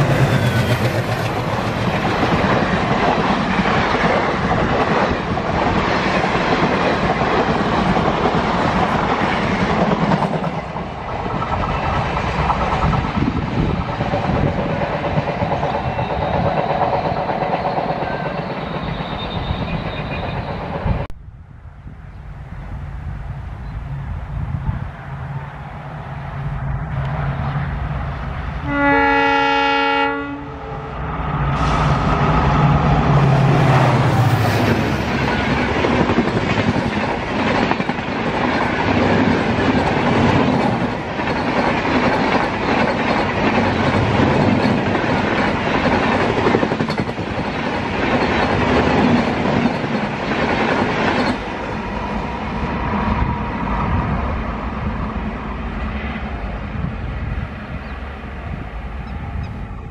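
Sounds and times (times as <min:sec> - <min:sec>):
train passing at speed: 0:00.0 - 0:59.9
train horn: 0:28.6 - 0:31.0.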